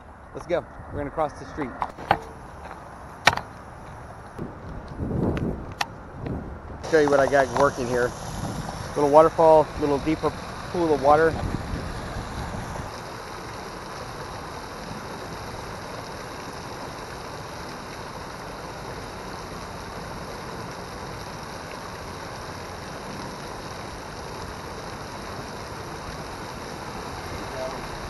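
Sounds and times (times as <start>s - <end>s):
waterfall splashing into pool: 6.8s - 28.0s.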